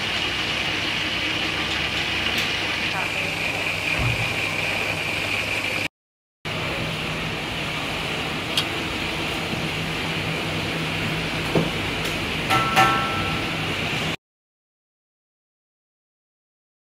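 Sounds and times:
food sizzling in hot oil: 0:00.0 - 0:05.4.

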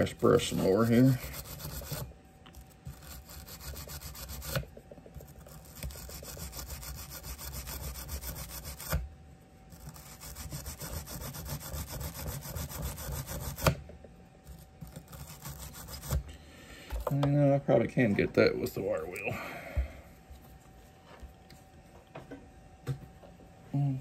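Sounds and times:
wire brush scrubbing metal: 0:00.0 - 0:02.1, 0:02.8 - 0:04.6, 0:05.2 - 0:09.0, 0:09.7 - 0:13.7, 0:14.8 - 0:16.2.

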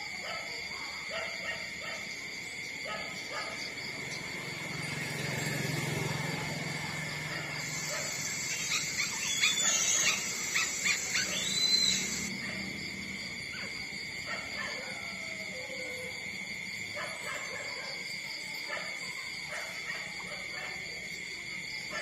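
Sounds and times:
steady high whine: 0:06.3 - 0:12.3.

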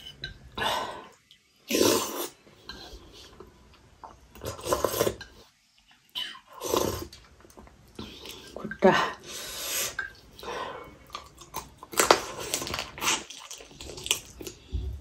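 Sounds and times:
person slurping soup: 0:01.0 - 0:03.4, 0:04.4 - 0:05.5, 0:06.2 - 0:07.2.

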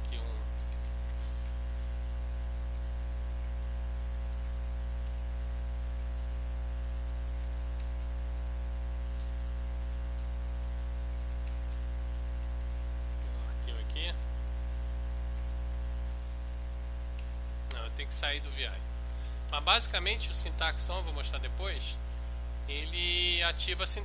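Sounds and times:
low electrical hum: 0:00.0 - 0:24.0
computer keyboard keystrokes: 0:00.6 - 0:01.6, 0:04.4 - 0:06.2, 0:07.2 - 0:08.1, 0:09.0 - 0:09.5, 0:11.2 - 0:13.2, 0:15.3 - 0:15.6.

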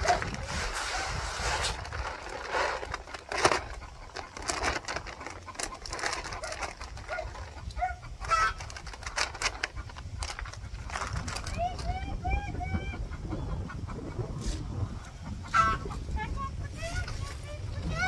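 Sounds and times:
pellets pouring into metal can: 0:00.0 - 0:07.0
paper sack rustling: 0:00.0 - 0:07.6, 0:08.2 - 0:11.9.

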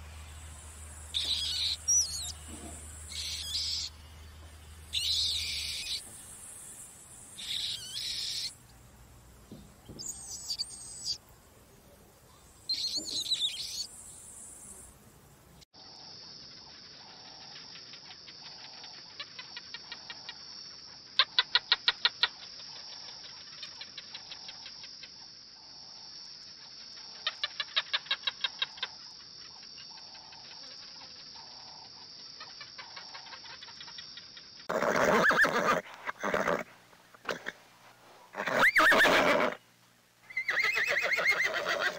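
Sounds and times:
steady high buzz: 0:00.0 - 0:15.6
bat squeaking high chirps: 0:01.1 - 0:02.4, 0:03.1 - 0:03.9, 0:04.9 - 0:06.0, 0:07.3 - 0:08.6, 0:10.0 - 0:11.2, 0:12.7 - 0:14.6.

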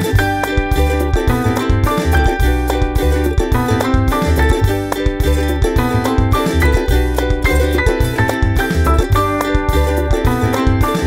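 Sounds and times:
upbeat background music: 0:00.0 - 0:11.0.

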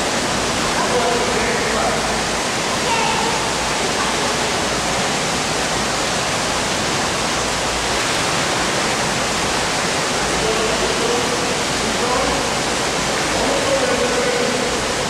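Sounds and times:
rushing water in indoor pool: 0:00.0 - 0:15.0.

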